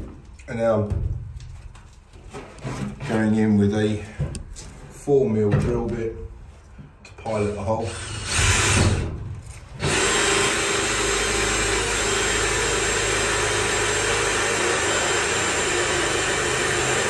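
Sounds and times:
cordless drill boring into metal: 7.9s - 9.0s, 9.8s - 17.0s.

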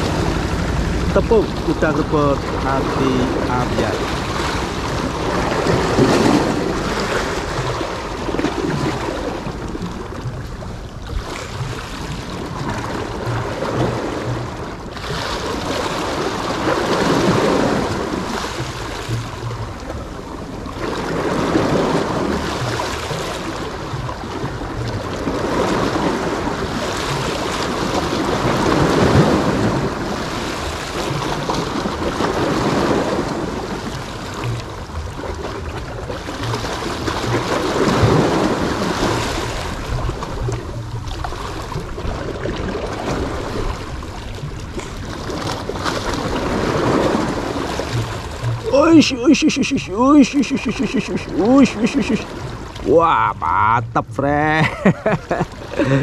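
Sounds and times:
waves splashing against stone: 0.0s - 56.0s.

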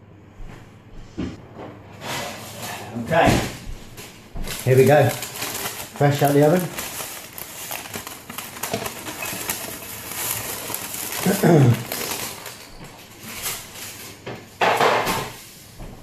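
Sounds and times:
paper crinkling and rustling: 4.0s - 15.4s.

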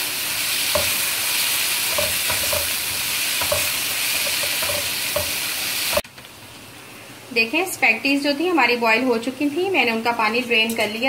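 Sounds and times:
food sizzling in oil: 0.0s - 6.1s
spatula scraping and knocking pan: 0.7s - 1.1s, 1.9s - 6.0s.

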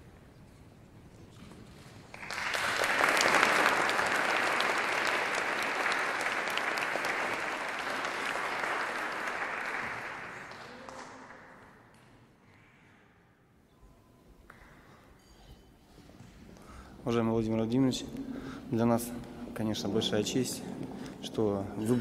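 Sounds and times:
audience applauding: 2.1s - 12.0s.

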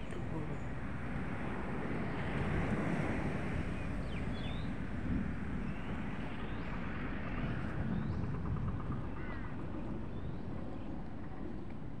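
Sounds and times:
wind buffeting microphone: 0.2s - 12.0s.

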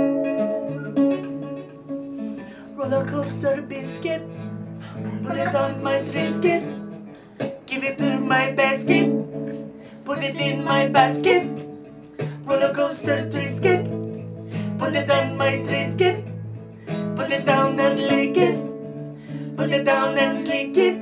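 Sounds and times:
wooden flute held notes: 0.0s - 1.4s
acoustic guitar strumming: 0.0s - 21.0s
person singing: 2.1s - 21.0s.

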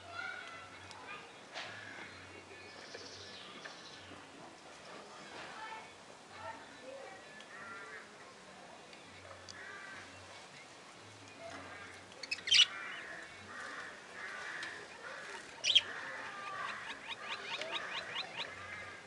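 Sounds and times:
budgerigars chattering and warbling: 11.7s - 19.0s.

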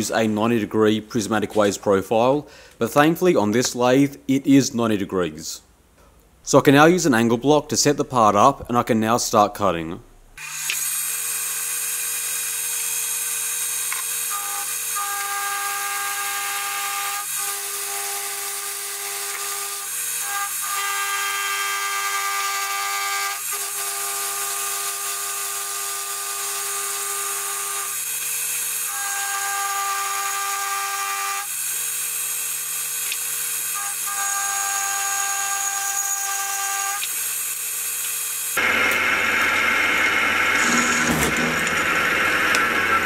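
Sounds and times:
metal cutting whine: 38.0s - 43.0s
milling machine motor hum: 38.0s - 43.0s.

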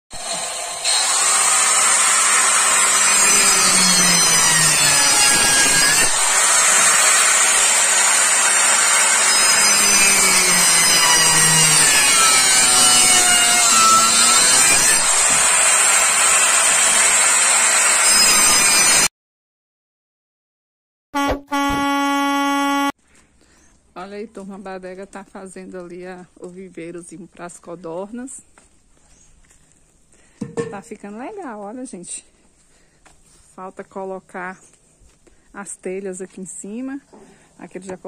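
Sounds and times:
power saw cutting wood: 0.1s - 19.1s.

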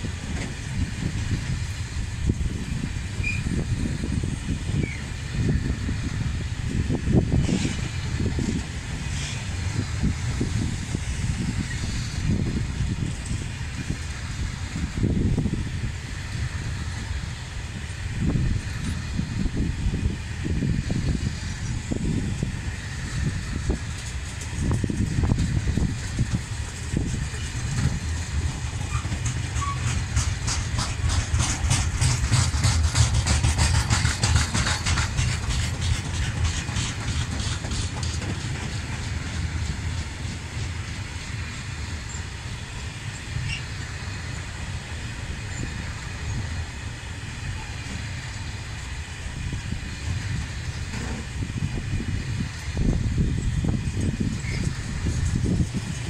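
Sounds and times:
freight train rumbling: 0.0s - 56.0s
wheels clattering over rail joints: 20.5s - 56.0s.

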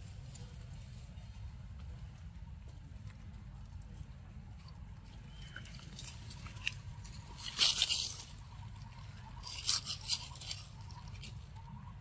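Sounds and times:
monkey gnawing fruit: 2.9s - 11.8s.

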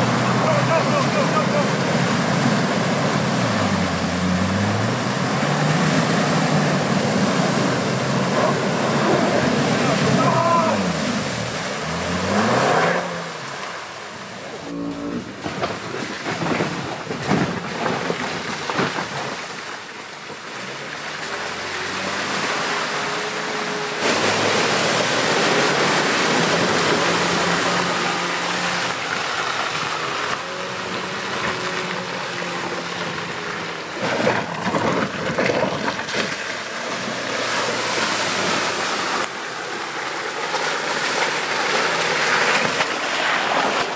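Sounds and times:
car engine revving: 0.0s - 15.5s
water splashing around vehicle: 0.0s - 43.9s
knocks and scrapes from mud and stones: 14.6s - 43.9s.

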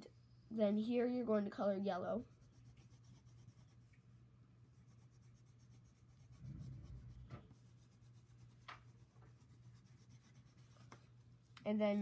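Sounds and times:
pencil scribbling on paper: 2.2s - 4.0s, 4.7s - 11.1s
low hum: 2.2s - 8.5s.

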